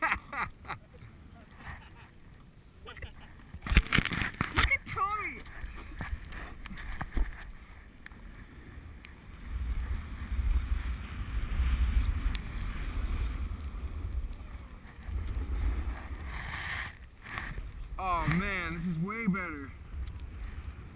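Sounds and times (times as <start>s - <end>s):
snowboard scraping over snow: 5.4s - 20.9s.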